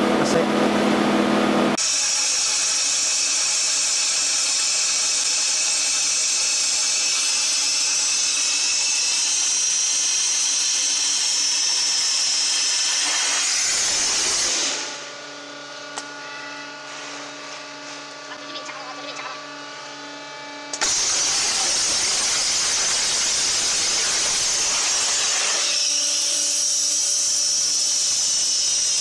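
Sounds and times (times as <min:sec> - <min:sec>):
steady machine hum: 0:00.0 - 0:28.2
water jet cutter hissing: 0:01.8 - 0:15.0, 0:20.8 - 0:29.0.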